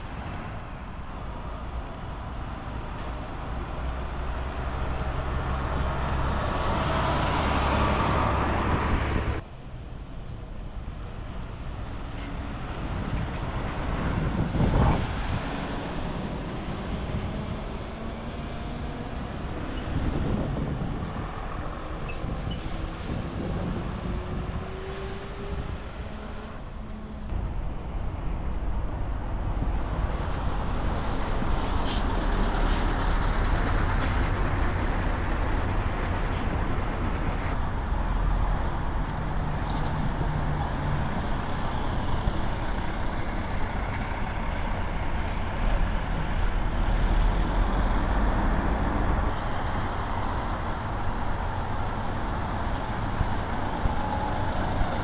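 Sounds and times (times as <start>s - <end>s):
bus engine rumbling: 0.0s - 55.0s.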